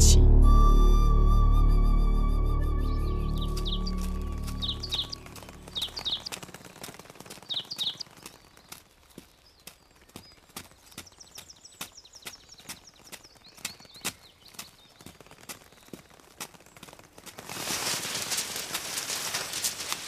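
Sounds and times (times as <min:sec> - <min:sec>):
background music: 0:00.0 - 0:05.8
birds chirping: 0:02.6 - 0:20.0
footsteps on dirt path: 0:03.3 - 0:20.0.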